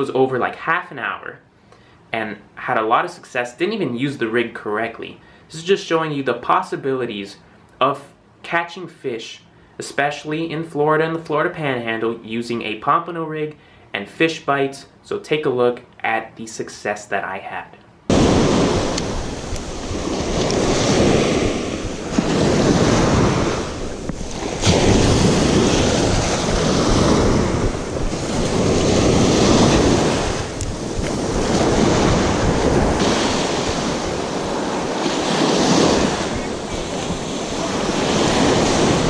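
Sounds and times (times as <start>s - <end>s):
surf washing up beach: 18.1s - 39.0s
wind on microphone: 18.1s - 39.0s.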